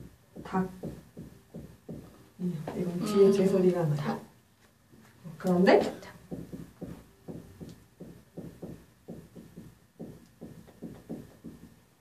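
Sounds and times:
marker writing on whiteboard: 0.0s - 2.2s, 6.2s - 11.9s.

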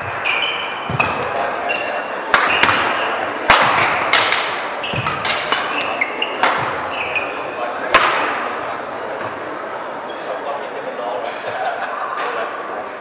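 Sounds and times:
rackets striking shuttlecock: 0.0s - 8.5s
court shoes squeaking: 0.0s - 10.4s
echoing hall noise: 0.0s - 13.0s.

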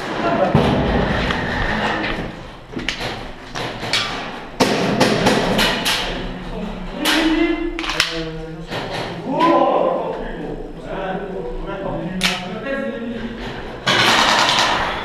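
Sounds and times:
pellets striking walls: 2.3s - 6.4s, 13.8s - 15.0s.

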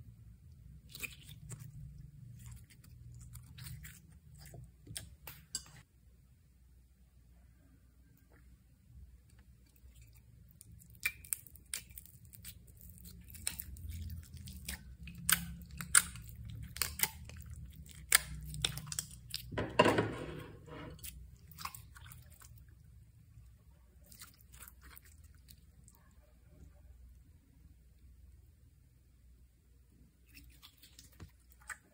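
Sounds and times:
slime squishing: 0.5s - 5.8s, 9.3s - 19.6s, 20.5s - 26.4s, 30.2s - 31.9s.

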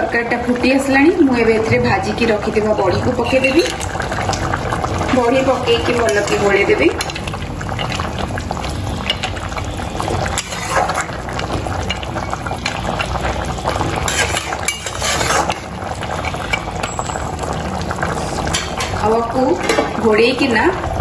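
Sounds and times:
curry simmering and bubbling: 0.0s - 21.0s
metal spatula scraping a pan: 10.3s - 11.1s, 14.0s - 15.7s.

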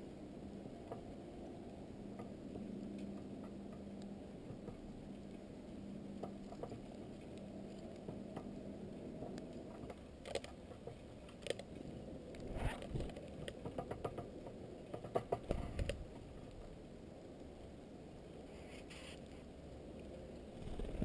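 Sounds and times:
birds pecking on feeder tray: 6.0s - 16.8s
rustle of seeds: 18.2s - 21.0s.

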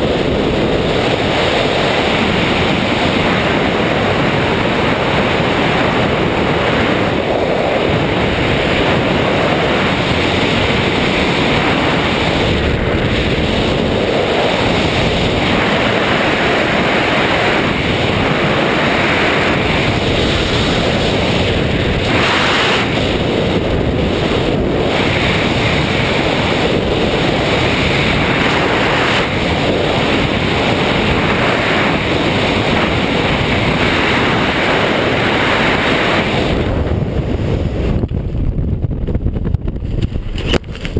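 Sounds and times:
wind rushing over microphone: 0.0s - 40.9s.

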